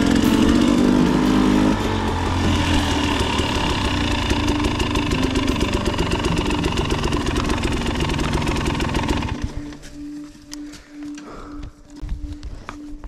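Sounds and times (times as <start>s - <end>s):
dirt bike engine running: 0.0s - 10.0s.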